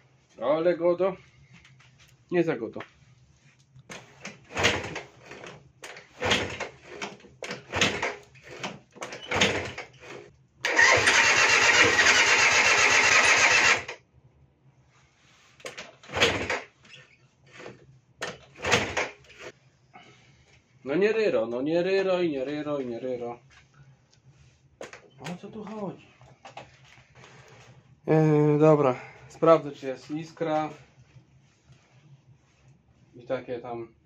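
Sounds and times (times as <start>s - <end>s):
scooter engine cranking: 4.6s - 14.0s, 16.1s - 16.7s, 18.6s - 19.5s.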